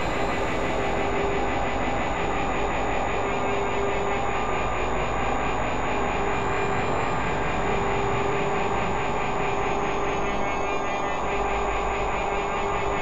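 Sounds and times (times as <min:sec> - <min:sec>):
thin high tone: 0:00.0 - 0:01.5
synthesized drone: 0:00.0 - 0:13.0.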